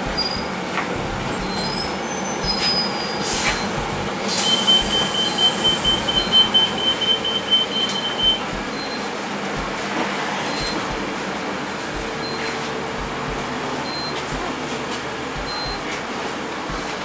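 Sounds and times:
high electronic beeper pulsing: 0:00.0 - 0:09.8, 0:10.5 - 0:11.1, 0:15.4 - 0:15.9
bus engine and ventilation hum: 0:00.0 - 0:17.0
air hiss: 0:03.1 - 0:03.7, 0:04.3 - 0:06.4.

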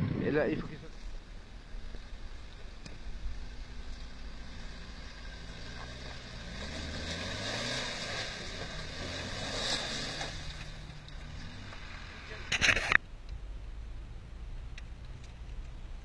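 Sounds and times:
suv engine pulling under load: 0:00.9 - 0:13.0.

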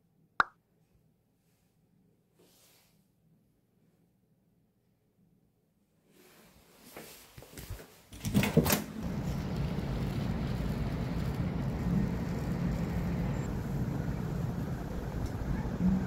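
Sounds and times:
traffic noise: 0:08.5 - 0:16.0.

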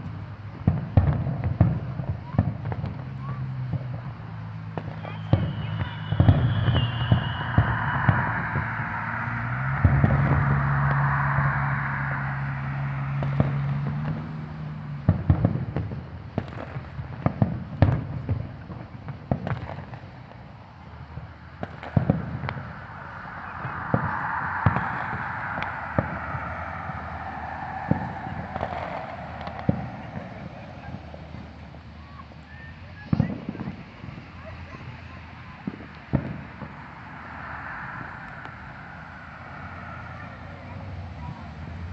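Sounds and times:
fireworks bangs and pops: 0:00.0 - 0:09.0, 0:13.2 - 0:22.8, 0:28.6 - 0:34.8, 0:35.6 - 0:36.8.

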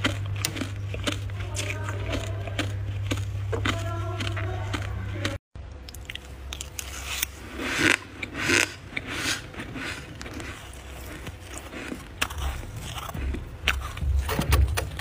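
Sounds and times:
low steady hum: 0:00.0 - 0:15.0
frost scraping crunch: 0:06.2 - 0:15.0.

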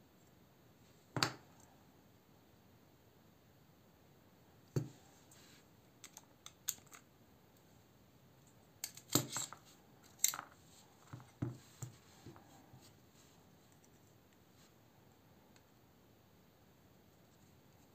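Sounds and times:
small metal clicks and clinks: 0:08.8 - 0:10.6.

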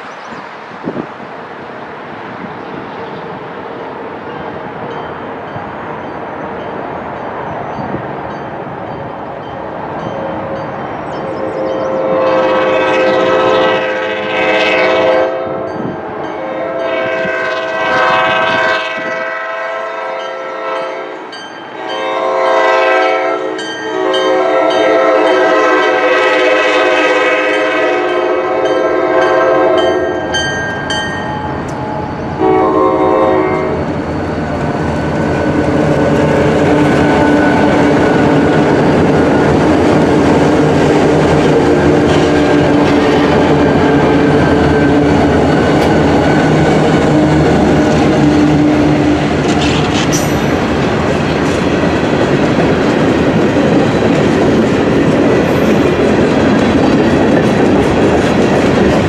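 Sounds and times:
train wheels on rails: 0:00.0 - 0:59.0
diesel locomotive horn blasts: 0:11.3 - 0:31.0, 0:31.7 - 0:34.0, 0:35.2 - 0:50.6
locomotive engines running: 0:33.8 - 0:59.0.

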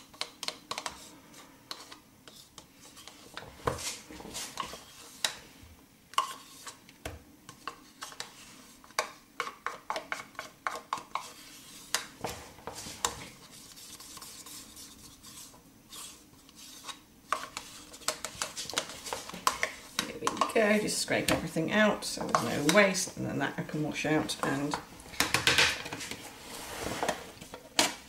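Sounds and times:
spoon scraping and tapping in pot: 0:17.3 - 0:21.4, 0:22.2 - 0:23.1.

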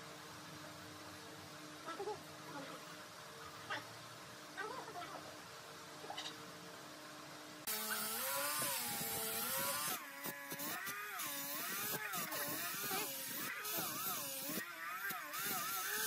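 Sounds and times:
angle grinder sanding wood: 0:07.7 - 0:16.0.

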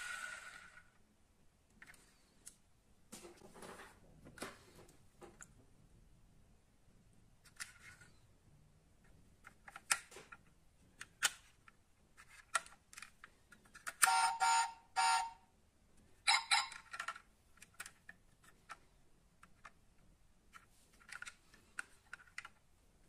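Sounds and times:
model car parts clicking and tapping: 0:09.4 - 0:14.1, 0:16.6 - 0:19.8, 0:20.5 - 0:22.7.

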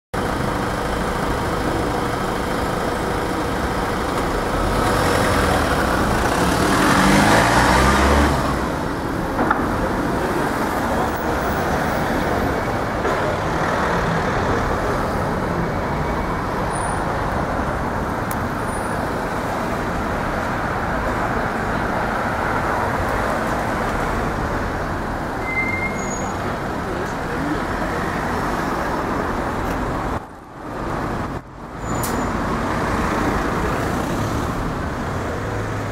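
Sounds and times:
city street traffic: 0:00.1 - 0:35.9
vehicle passing by: 0:04.6 - 0:08.9.

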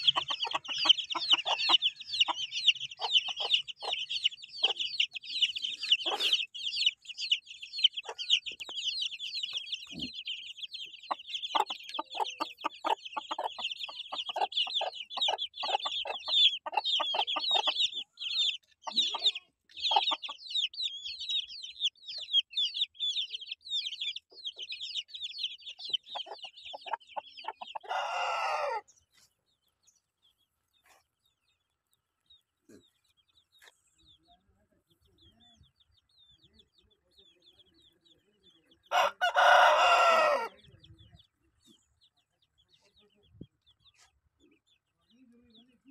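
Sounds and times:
hen clucking: 0:00.0 - 0:29.3, 0:37.5 - 0:41.9
chicks peeping: 0:00.0 - 0:45.9.

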